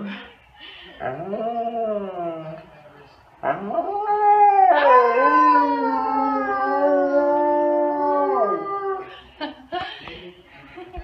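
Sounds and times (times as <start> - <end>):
dog howling: 3.4 - 9.1
woman howling: 3.8 - 9.0.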